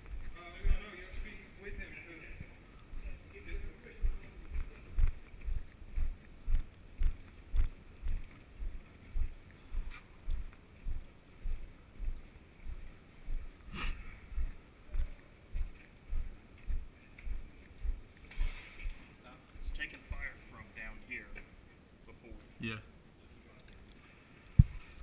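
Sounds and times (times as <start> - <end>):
footsteps on concrete: 3.6 - 13.6, 14.3 - 19.1.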